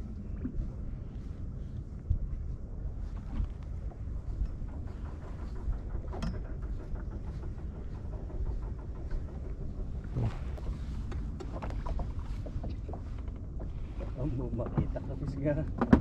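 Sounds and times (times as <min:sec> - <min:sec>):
water lapping against boat hull: 0:00.0 - 0:16.0
wind buffeting microphone: 0:00.0 - 0:16.0.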